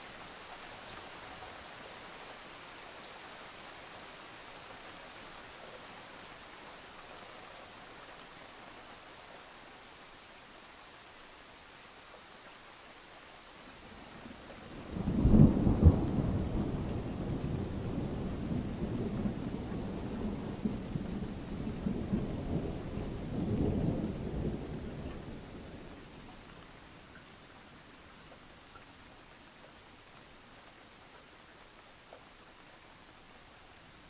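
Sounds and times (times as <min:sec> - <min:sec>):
rain hiss: 0:00.0 - 0:34.0
rolling thunder: 0:14.8 - 0:25.7.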